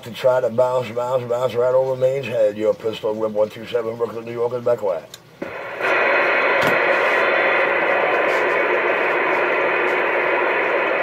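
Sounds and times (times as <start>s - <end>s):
radio static: 5.4s - 11.0s.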